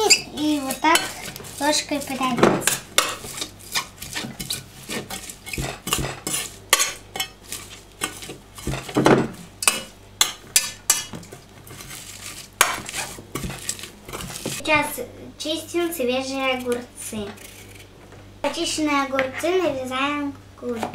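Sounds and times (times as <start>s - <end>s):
metal spoon scraping a pot: 0.0s - 9.0s, 9.6s - 14.6s.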